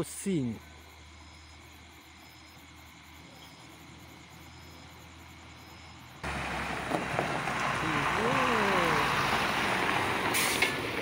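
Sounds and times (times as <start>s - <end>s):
insects chirping: 0.0s - 11.0s
truck rushing past: 6.2s - 11.0s.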